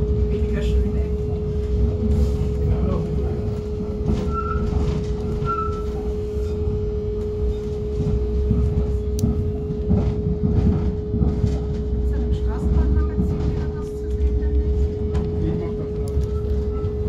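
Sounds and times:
light-rail car running rumble: 0.0s - 17.0s
wheel squeals: 4.2s - 6.0s.

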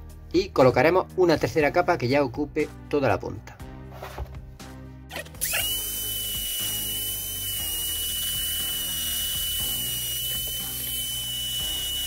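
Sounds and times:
rotary tool high whine: 5.1s - 12.0s.

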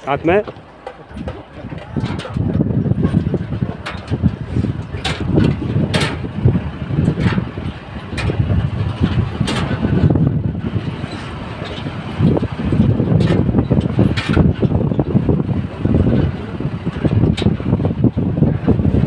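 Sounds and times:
truck engine and road rumble: 0.0s - 19.0s
sharp knocks over bumps: 0.3s - 7.5s.

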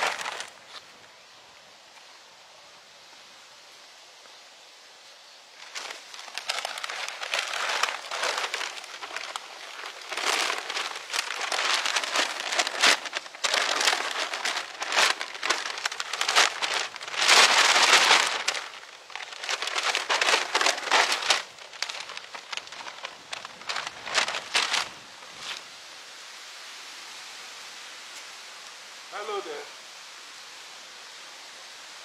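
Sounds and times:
paper bag crinkling: 0.0s - 0.7s, 5.6s - 25.6s.

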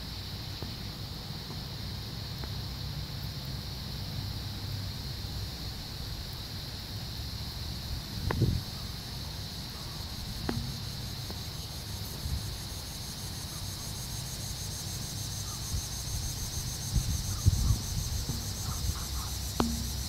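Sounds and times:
insect chorus chirping: 0.0s - 20.0s
wind rumble on microphone: 7.8s - 8.8s, 15.7s - 20.0s
soft knocks: 10.5s - 11.4s, 17.6s - 20.0s.

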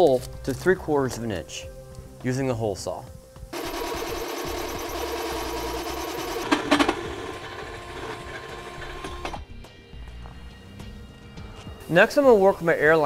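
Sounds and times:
drill motor whine: 3.6s - 9.4s.

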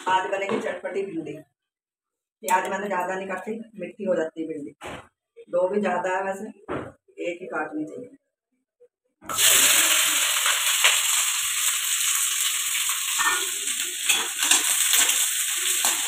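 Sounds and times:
onions sizzling in pan: 9.3s - 16.0s.

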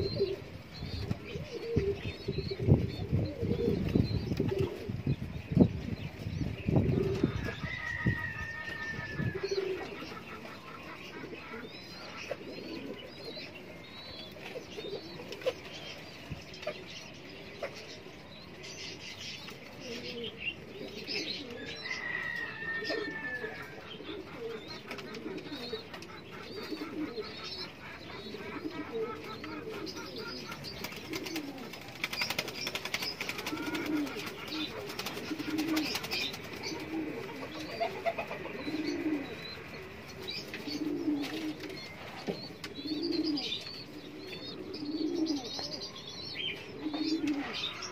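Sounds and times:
birds chirping: 0.0s - 47.9s
pigeons cooing: 0.0s - 47.9s
wings flapping: 30.4s - 38.2s.

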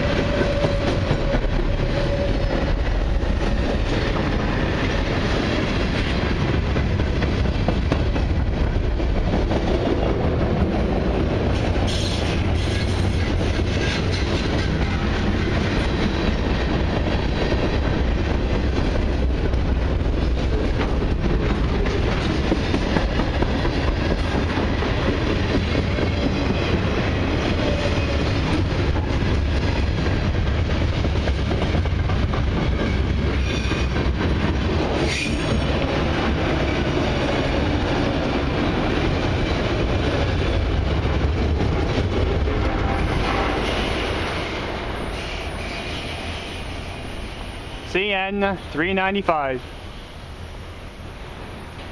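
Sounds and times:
freight train wheels rumbling: 0.0s - 51.9s.

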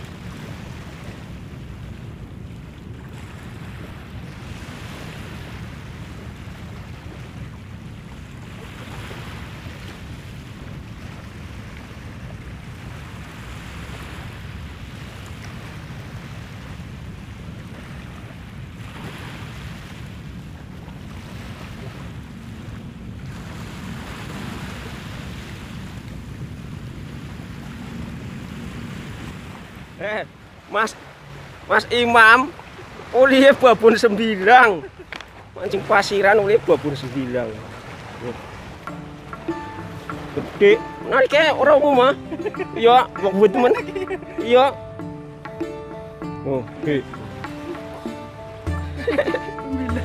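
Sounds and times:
wind rumble on microphone: 0.0s - 33.1s
small waves washing on sand: 0.0s - 44.8s.

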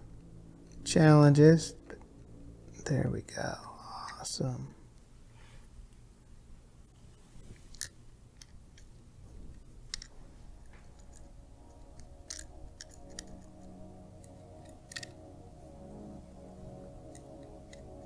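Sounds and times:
faint steady tone: 0.0s - 18.0s.

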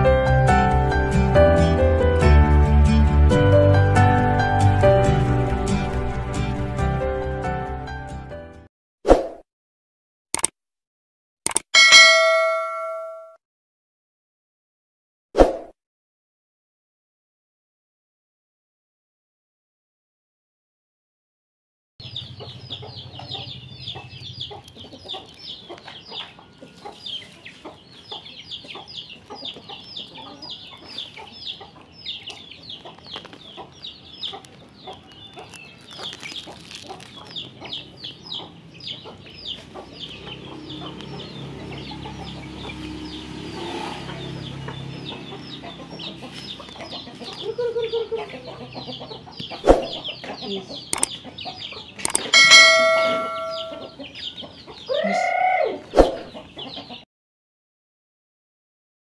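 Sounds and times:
chicks peeping: 22.0s - 57.0s.

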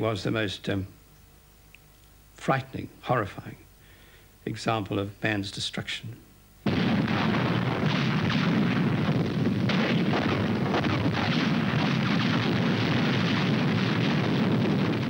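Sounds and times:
artillery barrage rumble: 6.6s - 15.0s.

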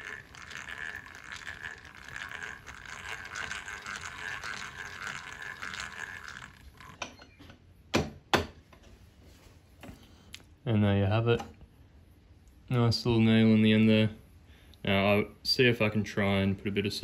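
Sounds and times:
hand drill whirring and clicking: 0.0s - 7.0s.

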